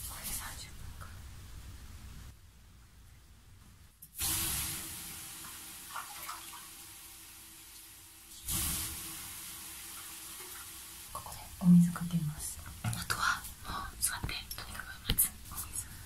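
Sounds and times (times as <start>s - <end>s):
water hissing on hot stones: 4.2s - 13.6s.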